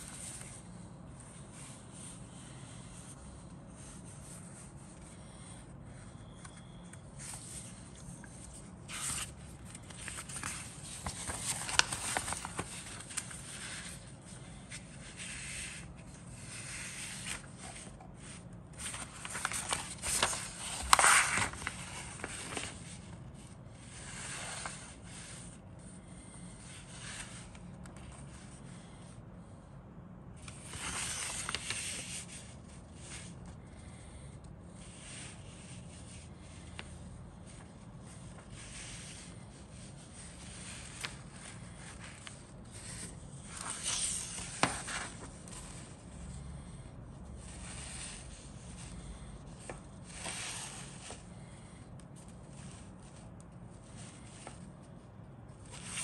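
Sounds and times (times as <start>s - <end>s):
paper pages rustling: 0.0s - 25.5s, 30.4s - 34.0s, 34.8s - 46.2s, 47.4s - 54.8s, 55.6s - 56.0s.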